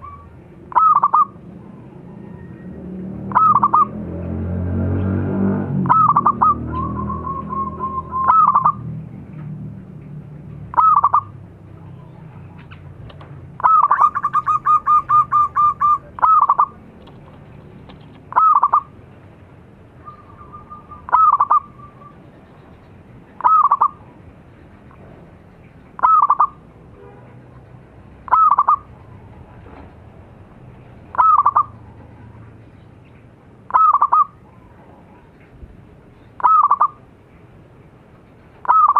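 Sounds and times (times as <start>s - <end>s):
dove cooing: 0.0s - 2.6s, 3.3s - 3.9s, 5.9s - 8.9s, 13.6s - 16.8s, 18.3s - 19.0s, 20.0s - 22.2s, 23.4s - 24.1s, 28.3s - 28.9s, 31.1s - 31.8s, 33.7s - 34.7s, 36.4s - 37.0s, 38.6s - 38.9s.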